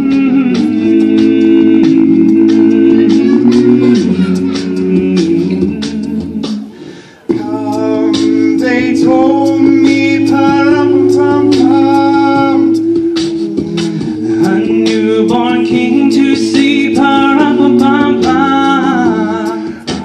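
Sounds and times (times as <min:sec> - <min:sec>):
a cappella choir singing: 0:00.0 - 0:20.0.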